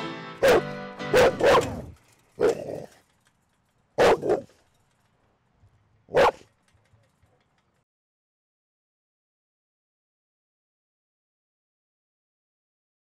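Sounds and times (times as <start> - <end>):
dog barking: 0.4 - 2.9, 4.0 - 4.5, 6.1 - 6.4.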